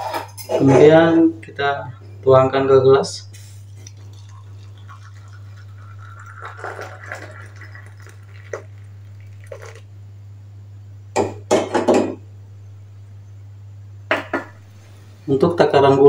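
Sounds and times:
coffee trickling into a mug: 3.7 - 9.9.

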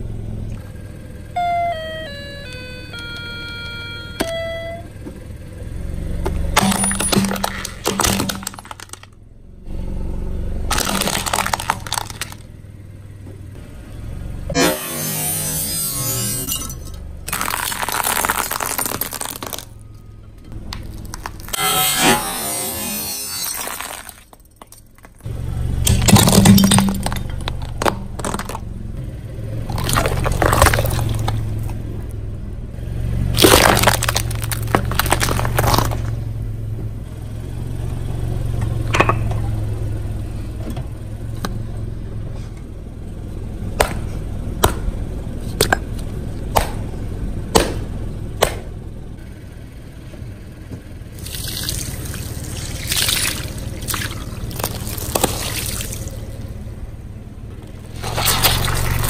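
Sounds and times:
low steady hum: 0.0 - 59.0
plastic bags bursting: 6.6 - 9.1, 10.7 - 12.4, 17.3 - 19.8, 29.7 - 31.4, 33.4 - 36.2, 51.2 - 56.2
tyre crushing objects cracking: 6.6 - 9.1, 10.7 - 12.5, 14.6 - 19.8, 20.6 - 28.8, 29.6 - 31.8, 33.3 - 36.3, 51.2 - 56.4, 57.9 - 59.0
liquid splashing: 51.2 - 56.2, 58.0 - 59.0.

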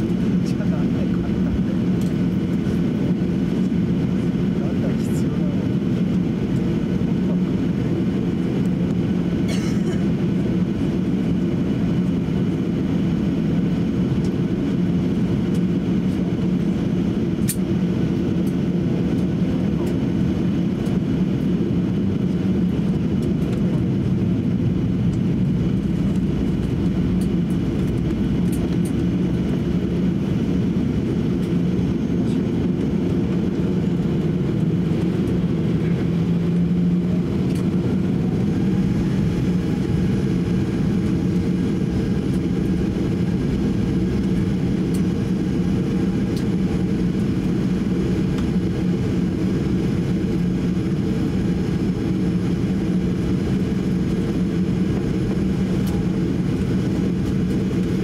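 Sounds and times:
airplane cabin rumble: 0.0 - 58.0
low hum: 20.6 - 58.0.

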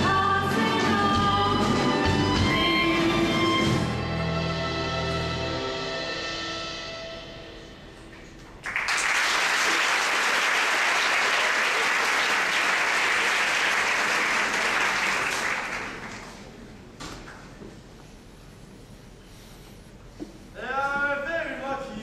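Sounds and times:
stage music: 0.0 - 8.8
audience applause: 8.6 - 16.6.

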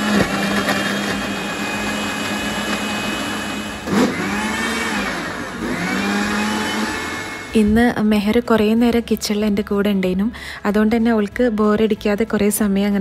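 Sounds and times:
mixer grinder motor running: 0.0 - 7.6.

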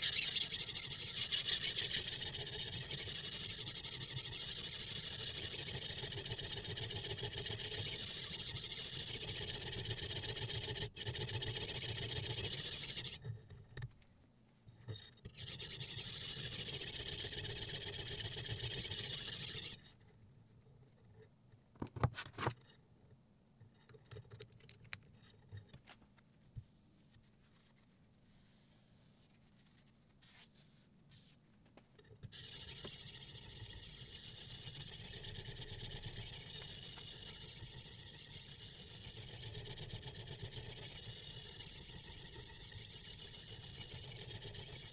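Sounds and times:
sharpening stone scraping knife: 0.0 - 3.6, 15.4 - 19.8, 32.3 - 39.9.

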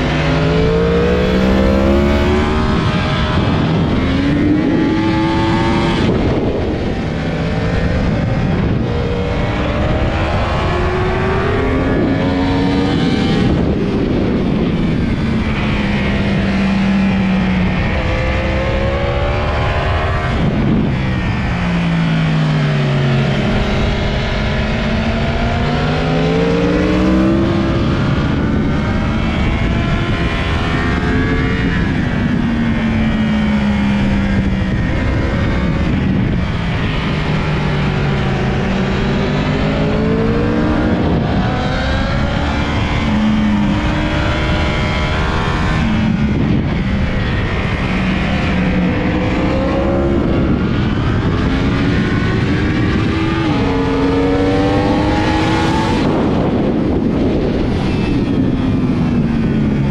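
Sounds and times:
motorcycle engine revving: 0.0 - 59.9
wind rush: 0.0 - 59.9.

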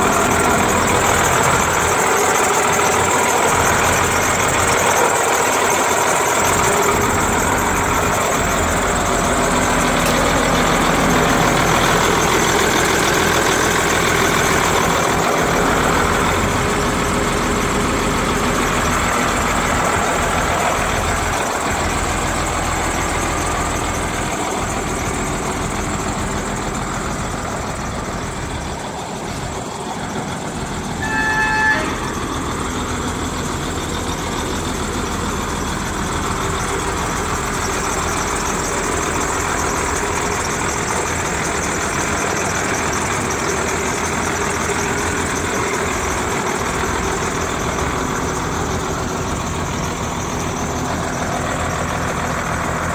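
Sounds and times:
truck engine idling: 0.0 - 52.9
vehicle horn toot: 31.0 - 32.2.

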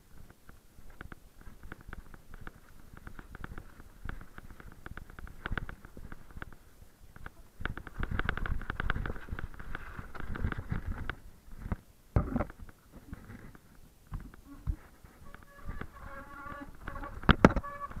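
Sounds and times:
mountain bike rattling over rocks: 0.2 - 14.4.

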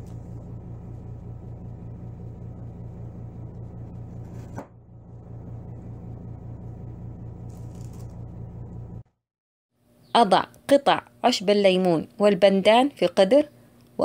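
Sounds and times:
low pulsing hum: 0.0 - 9.1.

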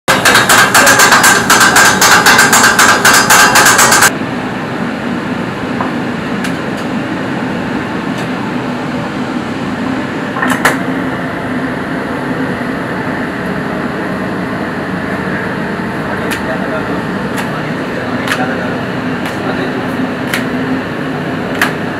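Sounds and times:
metal blades chopping on griddle: 0.1 - 4.1.

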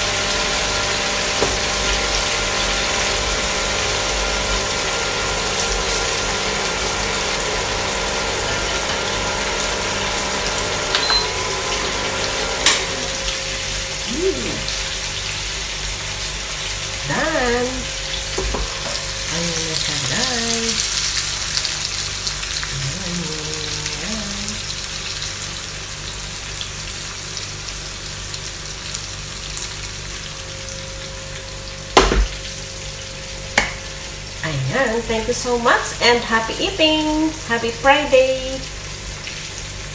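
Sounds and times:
cooling fan hum: 0.0 - 39.9
food sizzling in a frying pan: 0.0 - 39.9
short high beep: 11.0 - 11.4.

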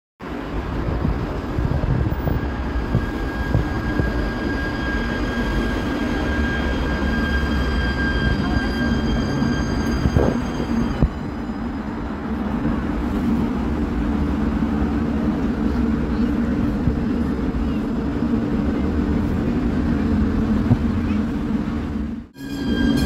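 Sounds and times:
tram rumbling: 0.2 - 23.0
high whines: 2.1 - 14.1.

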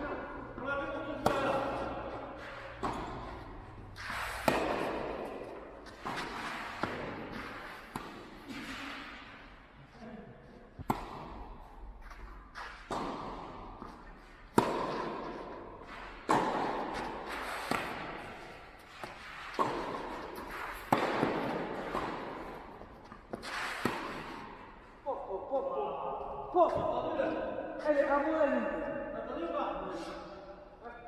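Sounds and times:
tennis ball hit by racquets: 0.0 - 9.6, 10.8 - 24.9.

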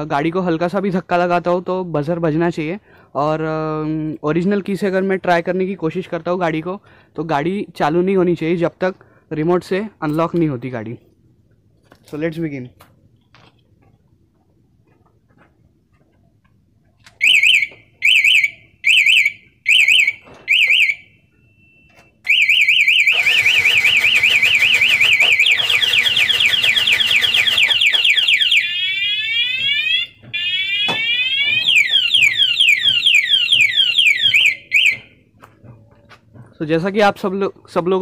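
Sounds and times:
motorcycle alarm siren: 17.2 - 35.2.

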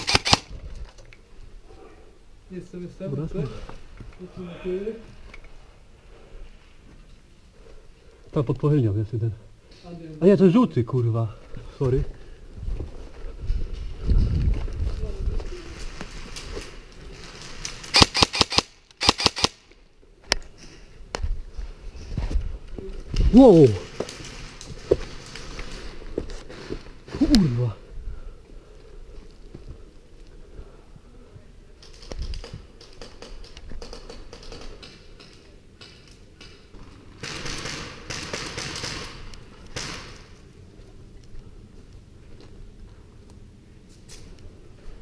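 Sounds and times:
airsoft gun shots: 0.0 - 0.5, 17.9 - 19.6
rough crunching rustle: 11.7 - 18.5.

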